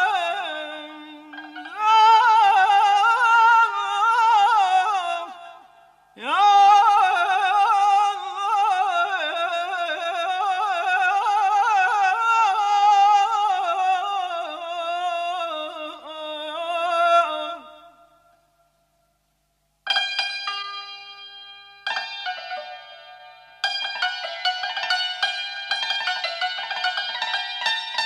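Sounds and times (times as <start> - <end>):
man singing ornamented melody: 0.0 - 18.5.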